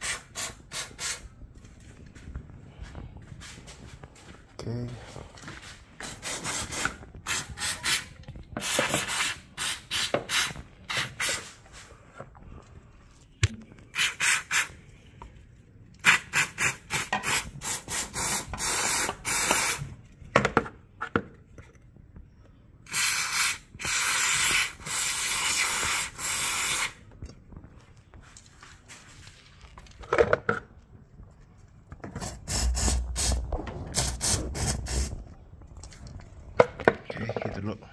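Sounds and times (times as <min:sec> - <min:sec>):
aerosol spray hissing: 0:22.9 - 0:27.0, 0:32.2 - 0:33.4.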